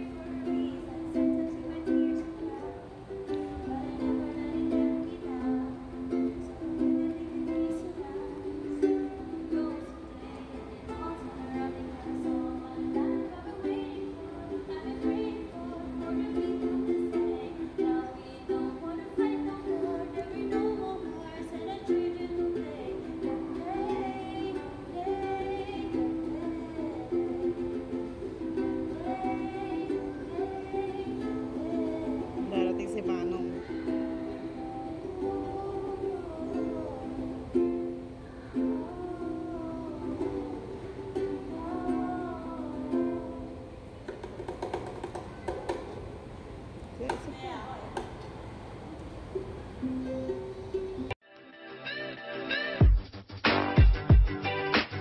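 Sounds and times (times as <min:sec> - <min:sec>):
woman singing: 0:00.0 - 0:43.8
ukulele strumming: 0:00.0 - 0:48.6, 0:49.2 - 0:55.0.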